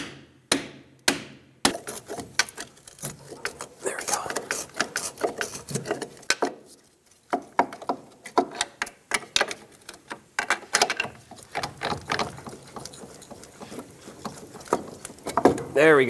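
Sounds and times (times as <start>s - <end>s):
metal knocks and clanks: 10.4s - 15.9s.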